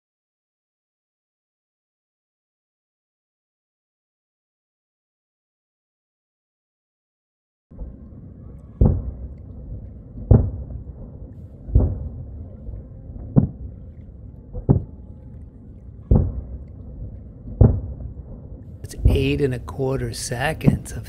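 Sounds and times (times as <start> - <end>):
low rumble: 7.7 - 21.0
distant fireworks booms: 7.8 - 15.2, 16.0 - 21.0.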